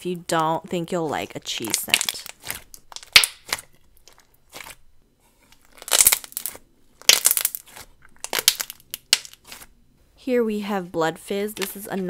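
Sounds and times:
hand squishing thick slime: 0:00.3 - 0:09.8.

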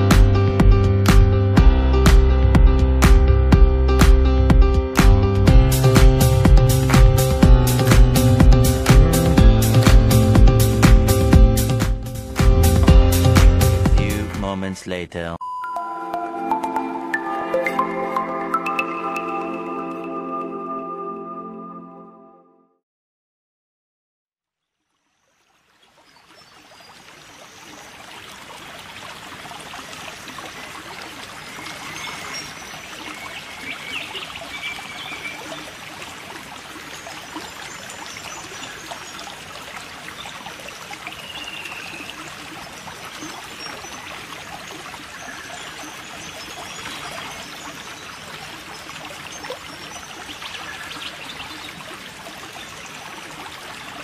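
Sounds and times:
water trickling and bubbling: 0:15.8 - 0:20.9, 0:24.8 - 0:54.0.

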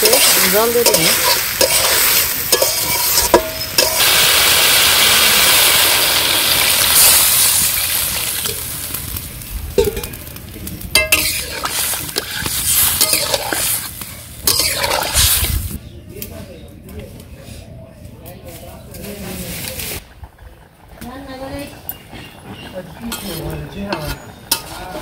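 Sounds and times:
metal spatula scraping a pan: 0:00.0 - 0:04.0, 0:11.0 - 0:15.6, 0:21.9 - 0:25.0
vegetables frying in oil: 0:00.0 - 0:15.8, 0:19.6 - 0:25.0
water sizzling in hot pan: 0:00.0 - 0:15.8, 0:20.9 - 0:25.0.

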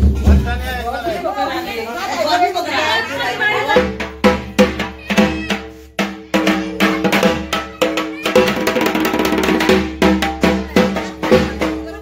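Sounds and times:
steady drum beat: 0:03.6 - 0:12.0.

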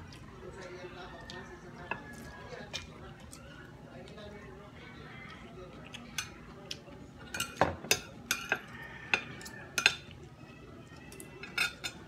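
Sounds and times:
cutlery clinking on a ceramic plate: 0:07.3 - 0:10.2, 0:11.2 - 0:12.0.

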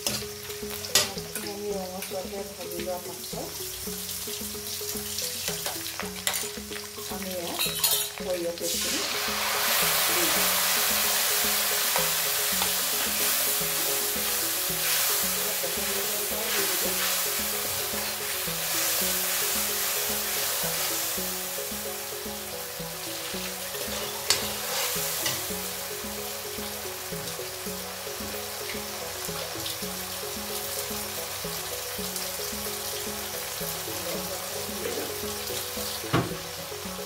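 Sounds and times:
loud sizzle in hot oil: 0:00.0 - 0:37.0
onions frying in oil: 0:00.0 - 0:37.0
steel spoon clinking and scraping: 0:05.5 - 0:06.6, 0:07.6 - 0:08.2, 0:23.8 - 0:25.5.

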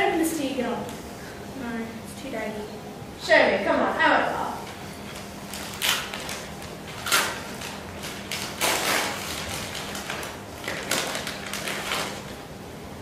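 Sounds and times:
faint electrical hum: 0:00.0 - 0:13.0
gift wrapping paper crinkling: 0:05.5 - 0:12.4.

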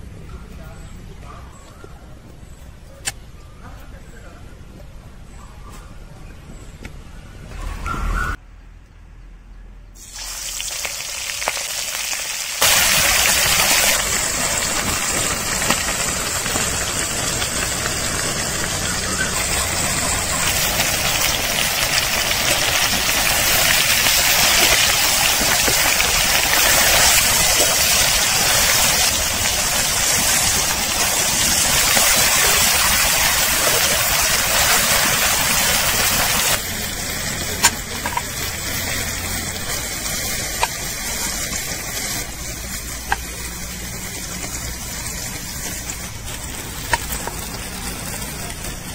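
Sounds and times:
prawns sizzling in hot oil: 0:10.0 - 0:48.9.

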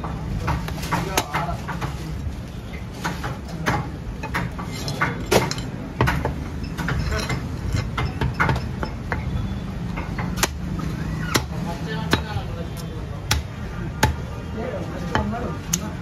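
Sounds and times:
meat cleaver chopping on wood: 0:13.3 - 0:14.2.

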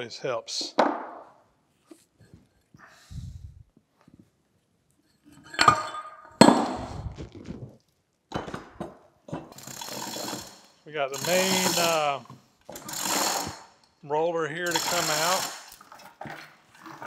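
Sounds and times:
metal scrape: 0:09.4 - 0:12.2.

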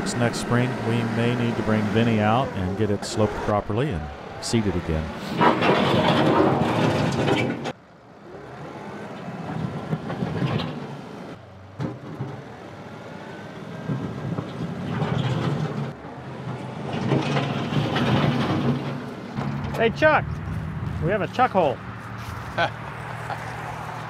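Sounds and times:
tractor diesel engine running: 0:00.0 - 0:22.5.

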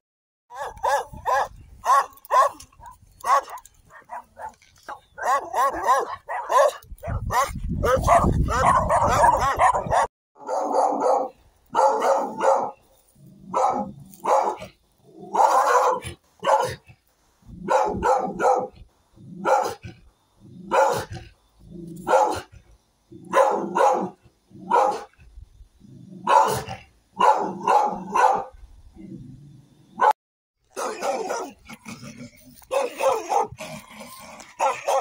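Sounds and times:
dog barking: 0:00.5 - 0:02.6, 0:03.2 - 0:12.8, 0:13.5 - 0:14.7, 0:15.3 - 0:16.8, 0:17.6 - 0:18.8, 0:19.4 - 0:19.8, 0:20.7 - 0:21.2, 0:22.0 - 0:22.5, 0:23.3 - 0:25.1, 0:26.2 - 0:28.5, 0:30.0 - 0:31.6, 0:32.7 - 0:33.6, 0:34.6 - 0:35.0.

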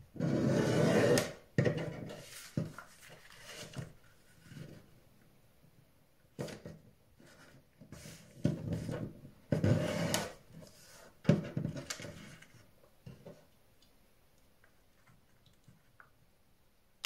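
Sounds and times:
paper folding and rubbing on wood: 0:02.0 - 0:04.9.

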